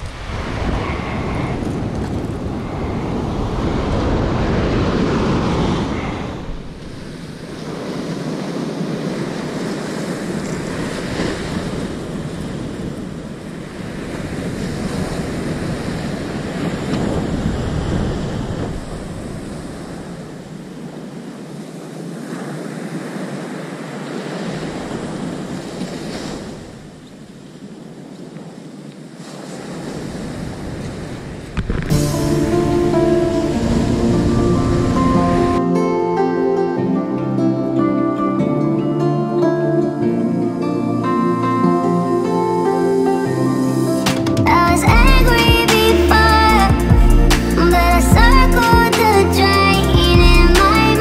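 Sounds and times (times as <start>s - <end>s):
wind buffeting microphone: 0.0s - 21.4s, 29.5s - 35.6s
surf washing onto beach: 0.0s - 38.6s.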